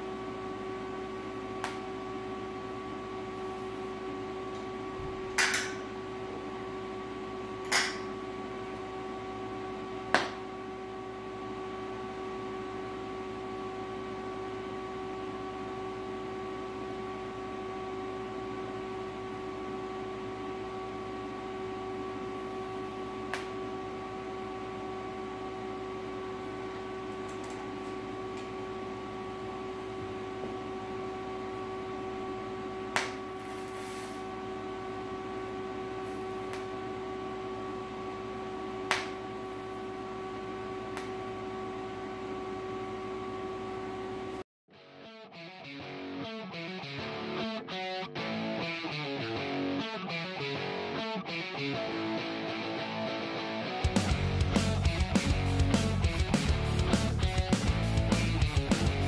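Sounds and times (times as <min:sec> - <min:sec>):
welder humming: 0:00.0 - 0:44.4, 0:46.0 - 0:59.0
welding arc snaps: 0:07.6 - 0:08.1, 0:33.0 - 0:34.2, 0:38.9 - 0:39.2.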